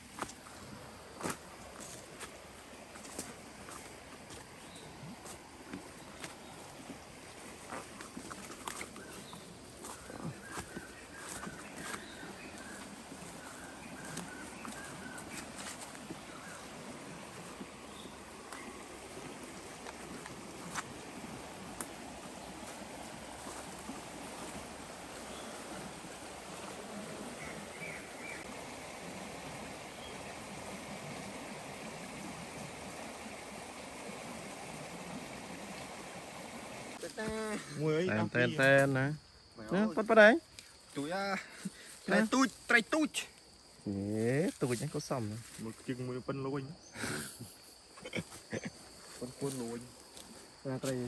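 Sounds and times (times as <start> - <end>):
forest stream rushing: 0.0 - 51.0
footsteps crunching through dry leaves: 1.1 - 27.0.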